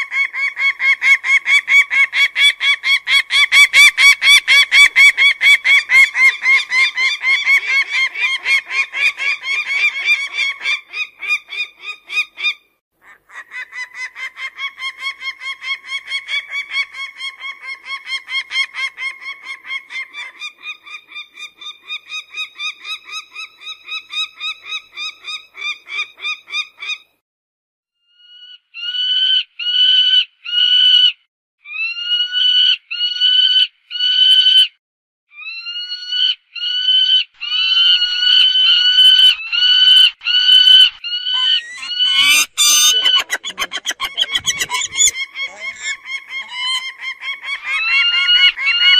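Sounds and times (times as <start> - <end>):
falcon calling: 37.6 - 48.9.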